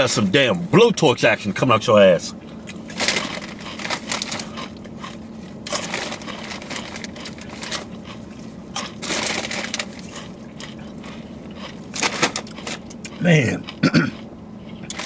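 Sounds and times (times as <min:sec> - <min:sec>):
faint low hum: 0:00.0 - 0:15.0
chips being chewed: 0:02.6 - 0:15.0.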